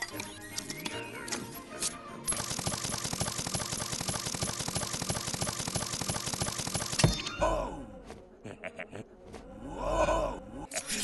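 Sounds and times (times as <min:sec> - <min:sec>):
rapid mechanical chopping rattle: 0:02.3 - 0:07.0.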